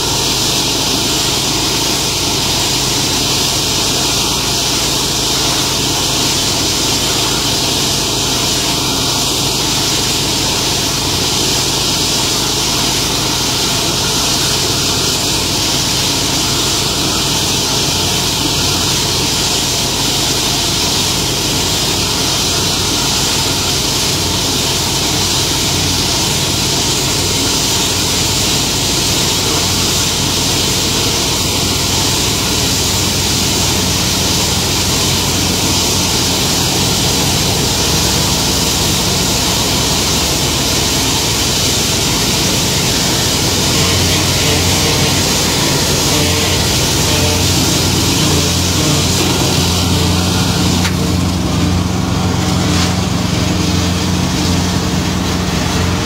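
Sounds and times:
machine engine humming: 0:00.0 - 0:56.0
constant hiss: 0:21.1 - 0:54.3.

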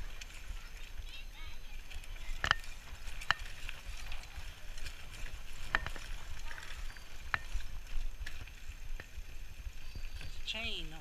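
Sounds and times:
bicycle tyres rumbling on trail: 0:00.0 - 0:11.0
wind: 0:00.0 - 0:11.0
bike rattling click: 0:01.8 - 0:10.5.

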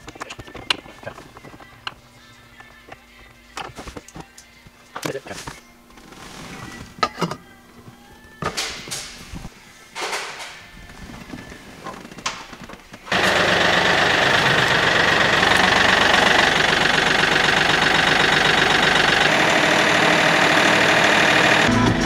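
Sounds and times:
tractor diesel engine idling: 0:13.1 - 0:22.0.

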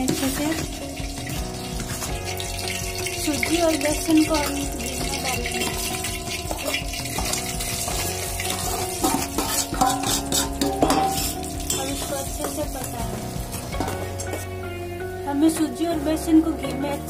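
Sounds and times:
metal spoon scraping a pot: 0:00.0 - 0:12.6
flour frying in hot ghee: 0:00.0 - 0:14.6
background music: 0:00.0 - 0:17.0.

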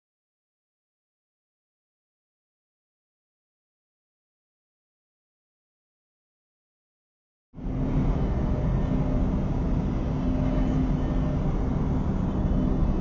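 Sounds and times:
city street rumble: 0:07.6 - 0:13.0
faint hum: 0:07.6 - 0:13.0.

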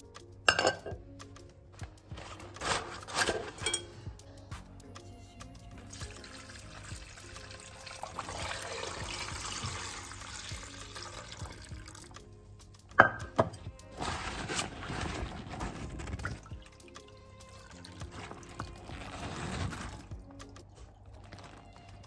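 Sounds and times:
background music: 0:00.0 - 0:22.0
liquid being poured: 0:05.8 - 0:12.2, 0:14.8 - 0:21.9.

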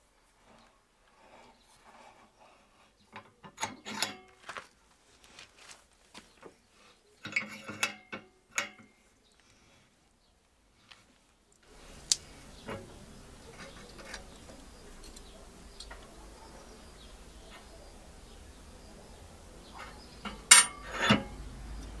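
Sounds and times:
bench vise clicking and rattling: 0:03.2 - 0:04.4, 0:07.2 - 0:08.9, 0:19.8 - 0:21.5.

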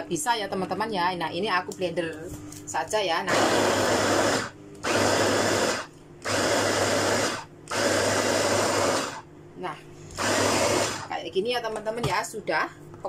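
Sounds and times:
food chopper motor humming: 0:03.2 - 0:09.3, 0:10.1 - 0:11.2.

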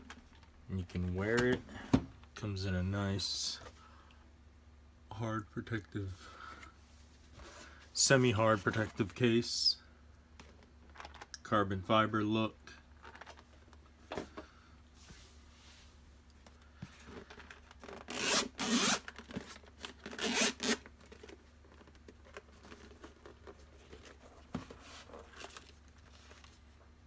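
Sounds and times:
zipper being drawn open: 0:17.8 - 0:19.0, 0:20.1 - 0:20.8.

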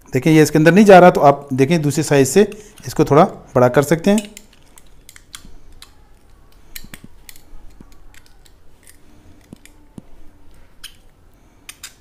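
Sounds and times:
metallic clicks of hand tool: 0:04.1 - 0:06.0.

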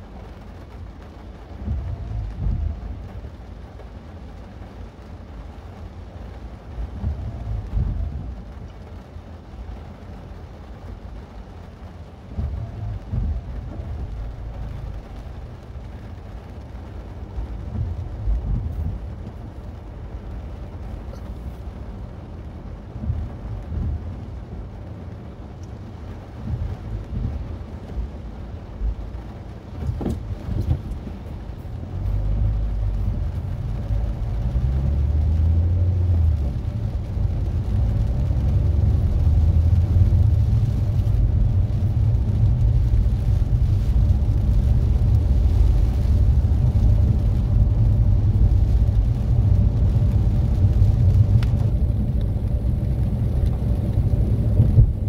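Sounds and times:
road and engine rumble inside car: 0:00.0 - 0:55.0.

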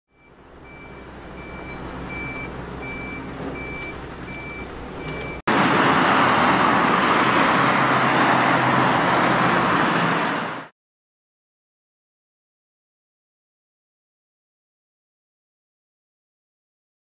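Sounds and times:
reversing alarm beeping: 0:00.1 - 0:05.4
engine running: 0:00.2 - 0:10.7
loud steady rushing noise: 0:05.5 - 0:10.7.

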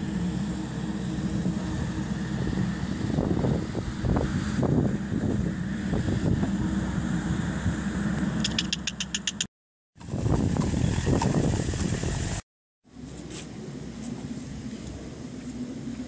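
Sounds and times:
wind buffeting microphone: 0:01.0 - 0:08.2, 0:10.0 - 0:12.4
sharp high ticks: 0:08.4 - 0:09.5.

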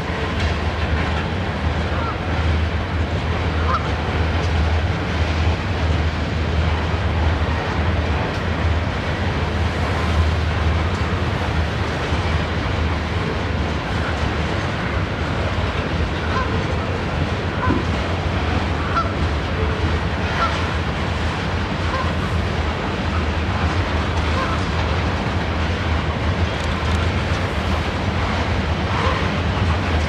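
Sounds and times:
freight train rolling past: 0:00.0 - 0:30.0.

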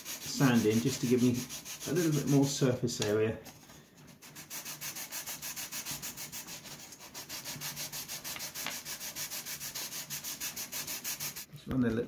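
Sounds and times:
sandpaper rubbing on wood: 0:00.0 - 0:02.7, 0:04.1 - 0:11.5.

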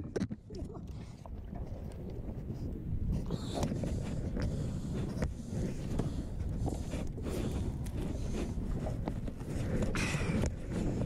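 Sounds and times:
wind buffeting microphone: 0:00.0 - 0:11.0
footsteps on floating dock: 0:03.9 - 0:11.0.

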